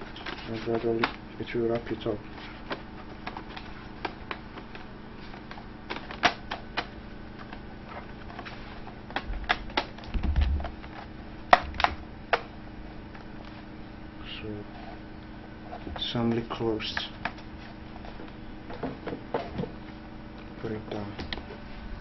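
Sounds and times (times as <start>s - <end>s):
low bumps: 10.1s - 10.7s.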